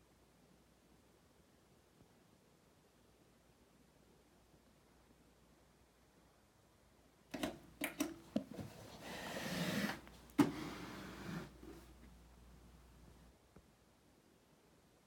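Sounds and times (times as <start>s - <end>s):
soft rubbing: 8.3s - 12.2s
amplifier scraping on carpet: 8.5s - 12.0s.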